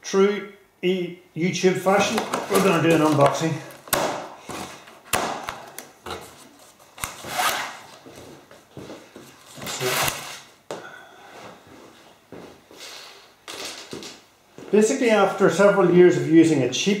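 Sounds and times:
plastic straps scraping cardboard: 0:02.0 - 0:03.9, 0:06.0 - 0:08.0, 0:09.3 - 0:10.5.

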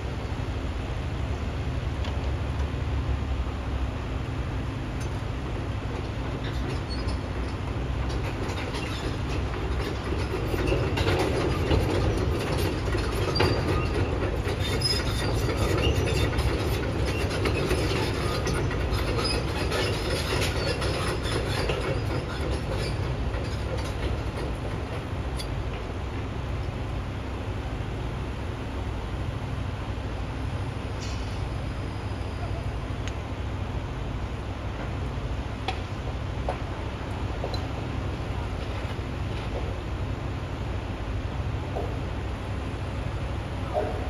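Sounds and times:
heavy machinery rumbling: 0:00.0 - 0:44.0
metallic squeals: 0:06.4 - 0:11.7, 0:13.1 - 0:24.0.

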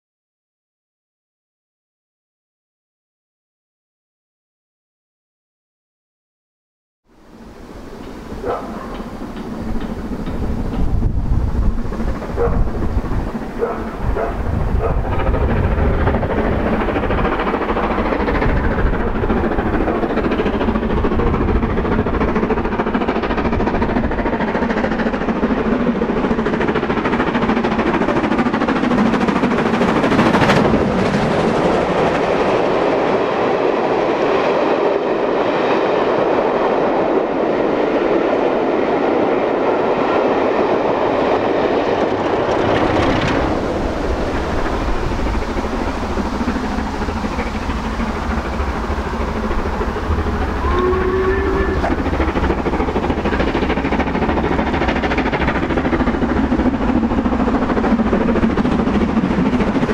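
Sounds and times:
steam locomotive exhaust beat: 0:07.2 - 0:59.9
wheels clattering over rail joints: 0:08.0 - 0:32.6, 0:41.0 - 0:59.9.

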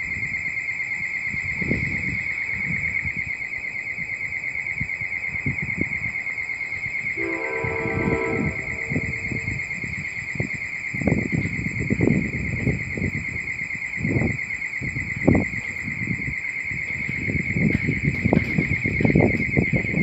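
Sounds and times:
wind gusts on microphone: 0:00.0 - 0:20.0
high warbling tone: 0:07.2 - 0:09.8.

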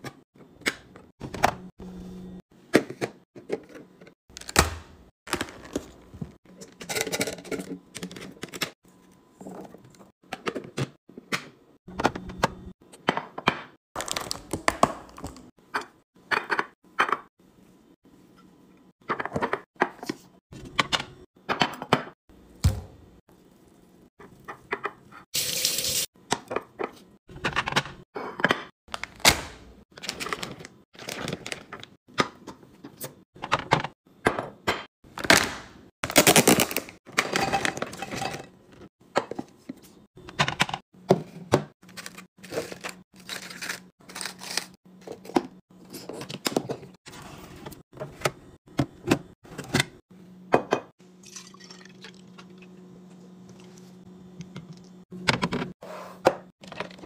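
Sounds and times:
food containers being handled: 0:05.3 - 0:08.7, 0:36.1 - 0:50.0.

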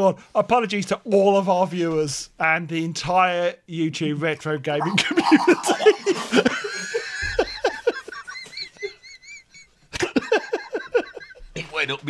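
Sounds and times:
man spluttering: 0:04.8 - 0:06.3
men laughing: 0:04.8 - 0:11.7.

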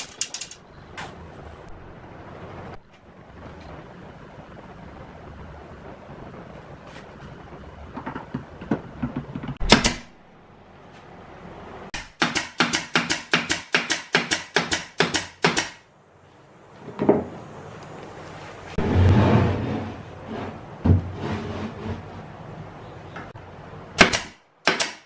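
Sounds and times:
nail gun firing: 0:09.6 - 0:10.1, 0:12.0 - 0:15.8, 0:24.0 - 0:25.0.

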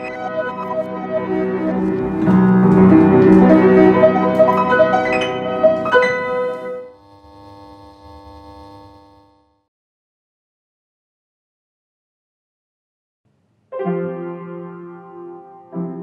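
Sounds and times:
piano music: 0:00.0 - 0:07.0, 0:13.7 - 0:16.0.

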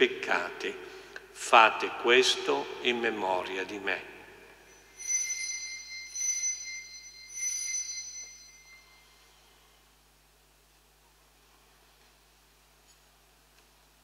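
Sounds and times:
altar bells ringing: 0:04.7 - 0:09.8.

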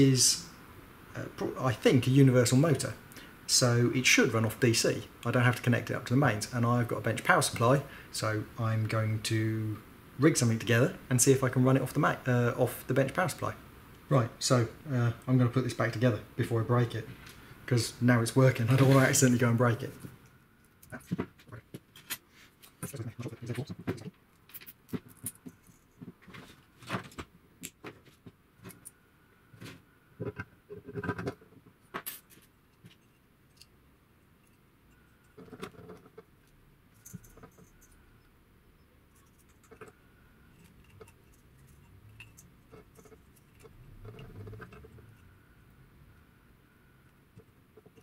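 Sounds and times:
motor parts clicking and rattling: 0:39.1 - 0:45.3.

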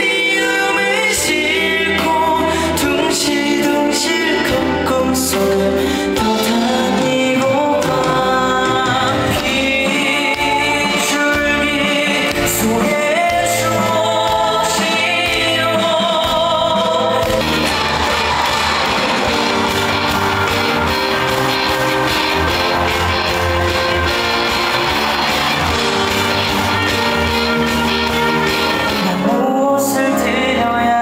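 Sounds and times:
man singing into a microphone: 0:00.0 - 0:17.4, 0:29.0 - 0:31.0
instrumental accompaniment: 0:00.0 - 0:31.0.

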